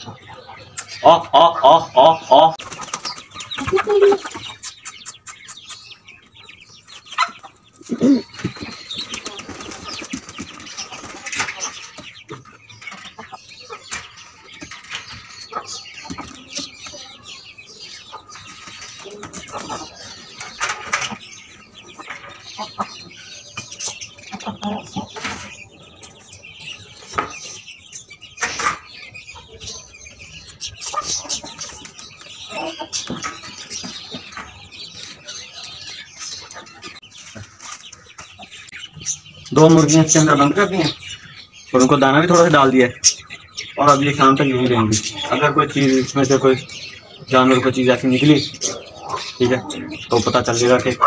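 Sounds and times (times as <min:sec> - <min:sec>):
hens clucking: 0:00.0 - 0:51.0
wings flapping: 0:02.6 - 0:04.1, 0:08.4 - 0:11.9.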